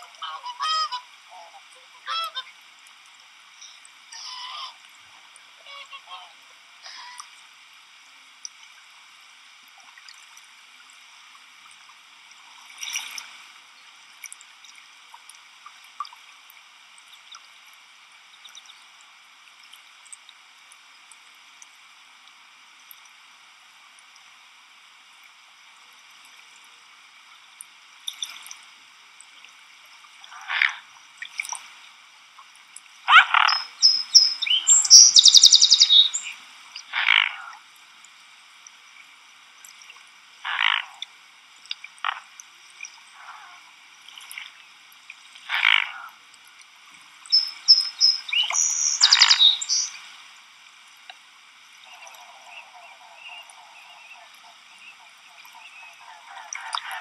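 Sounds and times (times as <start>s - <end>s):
trilled bird call: 0.0s - 2.5s, 33.1s - 36.4s, 47.3s - 50.0s, 51.9s - 57.0s
frogs croaking: 0.0s - 2.6s, 30.2s - 31.0s, 33.0s - 37.7s, 40.3s - 41.2s, 41.8s - 43.8s, 45.4s - 46.2s, 47.2s - 50.2s, 51.7s - 57.0s.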